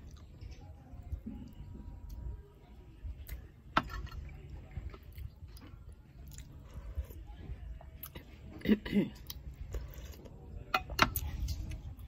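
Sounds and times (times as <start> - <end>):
person chewing: 4.9 - 7.2.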